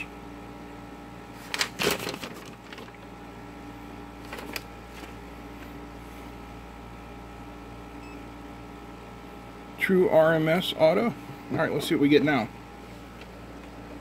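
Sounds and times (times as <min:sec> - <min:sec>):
paper rustling: 0:01.4 - 0:03.0, 0:04.2 - 0:05.2.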